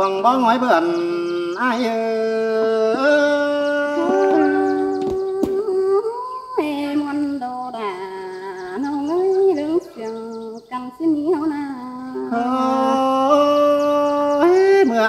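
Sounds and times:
woman singing unaccompanied: 1.5s - 15.0s.

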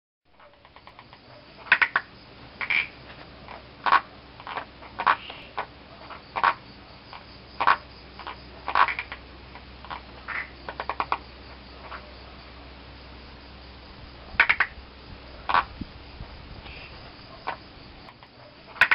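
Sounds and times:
frogs croaking: 0.3s - 18.9s.

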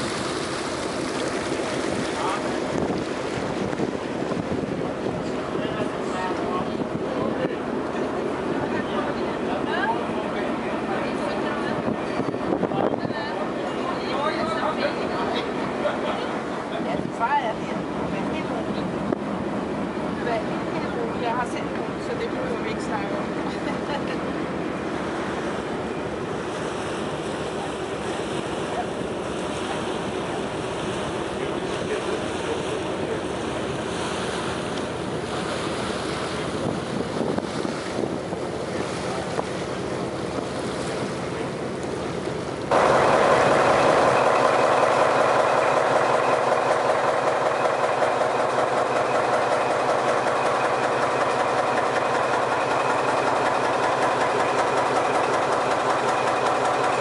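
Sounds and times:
ship engine humming: 0.0s - 57.0s
water rushing past ship: 0.0s - 57.0s
loud engine with fast beat: 42.7s - 57.0s.

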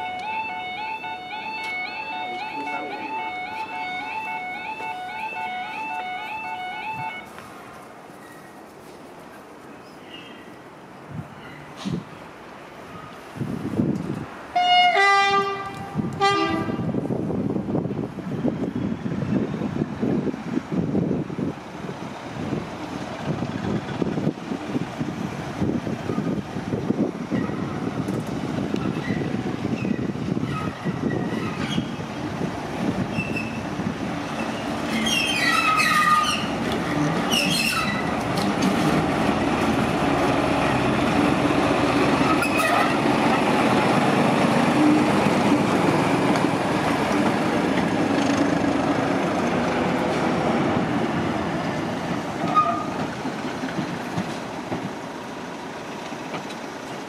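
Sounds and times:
locomotive diesel engine: 0.0s - 7.8s, 15.4s - 57.0s
wheel squeals and clanks: 28.7s - 32.0s, 33.1s - 33.7s, 34.4s - 38.9s, 42.2s - 43.0s, 52.4s - 53.1s.

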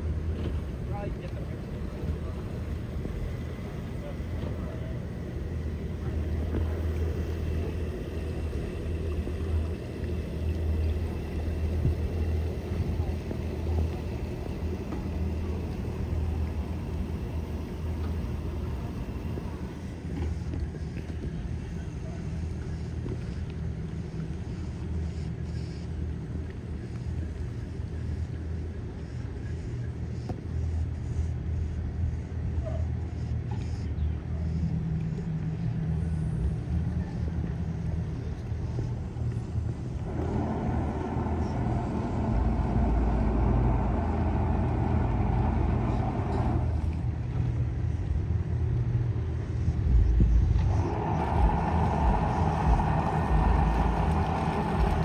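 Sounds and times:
outboard engines idling: 0.0s - 55.0s.

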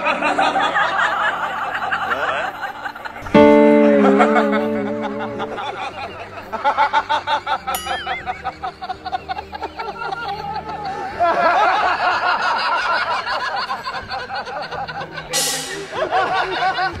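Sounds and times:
laugh track chuckling: 0.0s - 17.0s
falling whistle sound effect: 7.8s - 8.4s.

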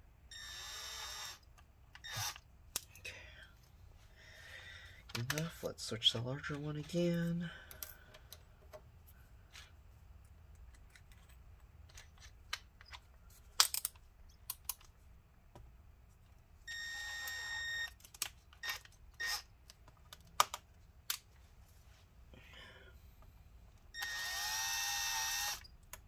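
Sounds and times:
small electric motor whirring: 0.3s - 2.4s, 24.0s - 25.7s.

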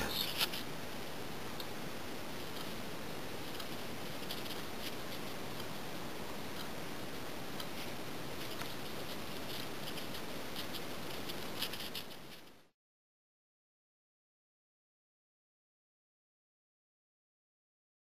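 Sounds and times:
room tone hiss: 0.0s - 12.7s.

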